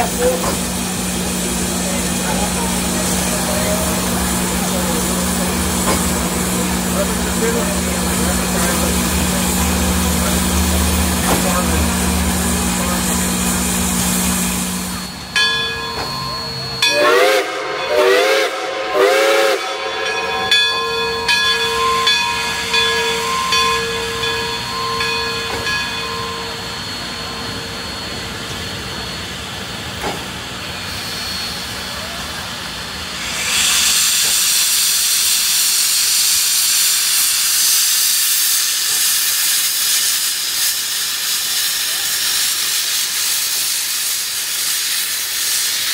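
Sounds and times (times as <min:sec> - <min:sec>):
steam hissing: 0:00.0 - 0:45.9
steam locomotive whistle: 0:16.0 - 0:28.8.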